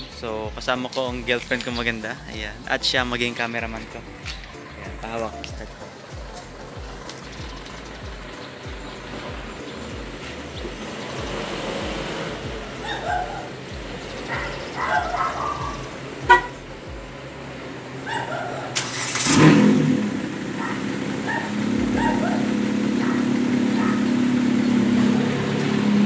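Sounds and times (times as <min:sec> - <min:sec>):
car engine starting and idling: 0:00.0 - 0:26.0.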